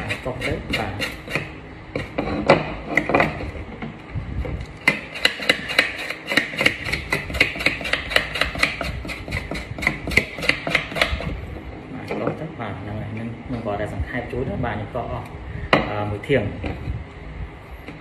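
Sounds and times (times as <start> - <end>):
knife chopping on board: 4.9 - 11.2.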